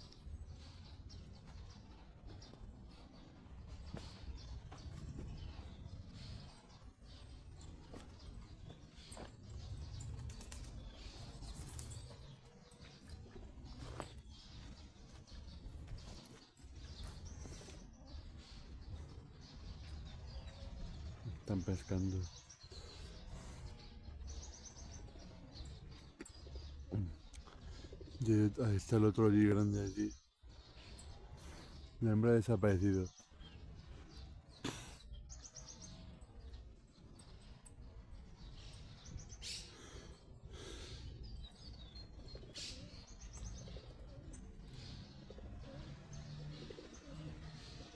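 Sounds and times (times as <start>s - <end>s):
small birds chirping: 0.0s - 47.9s.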